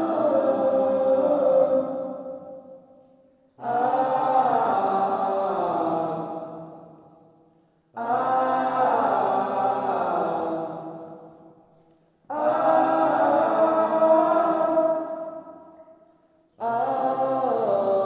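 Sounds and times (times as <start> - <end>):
chant-like voices singing: 0.0 - 2.8, 3.6 - 6.8, 8.0 - 11.3, 12.3 - 15.7, 16.6 - 18.0.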